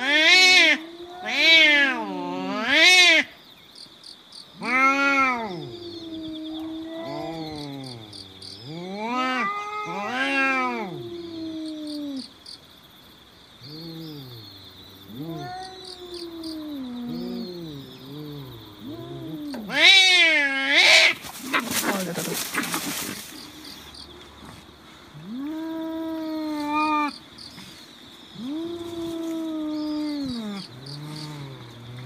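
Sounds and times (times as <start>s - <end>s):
cats yowling: 0.0s - 3.3s, 4.6s - 12.3s, 13.7s - 23.4s, 25.2s - 27.7s, 28.3s - 32.0s.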